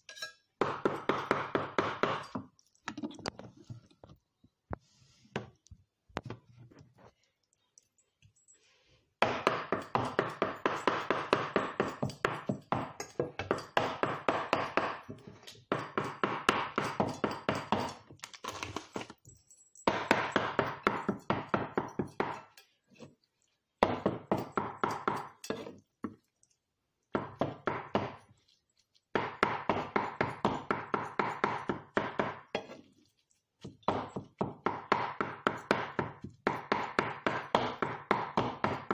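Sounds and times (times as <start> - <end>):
knife chopping meat on wood: 0.6 - 2.5, 9.2 - 17.9, 19.9 - 22.5, 23.8 - 25.6, 27.2 - 28.2, 29.1 - 32.8, 33.6 - 38.9.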